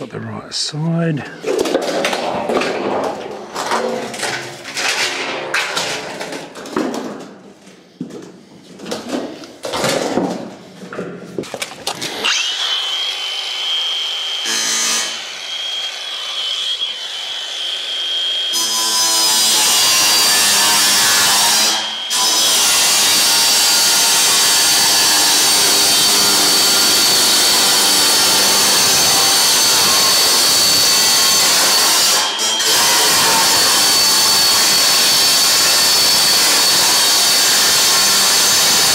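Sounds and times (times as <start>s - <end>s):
angle grinder whining: 11.8s - 38.9s
grinder cutting steel screech: 12.0s - 38.9s.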